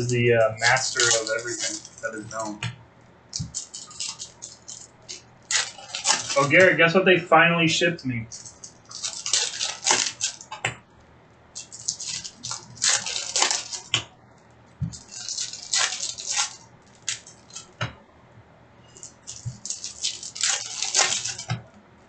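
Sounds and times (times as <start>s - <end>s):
card pack wrappers crinkling and tearing: 0.0s - 2.6s, 3.3s - 6.8s, 8.2s - 10.6s, 11.6s - 14.0s, 14.8s - 17.8s, 18.9s - 21.7s
cards rustling: 0.0s - 2.7s, 3.3s - 7.1s, 8.1s - 10.7s, 11.6s - 14.0s, 14.8s - 17.9s, 18.9s - 21.7s.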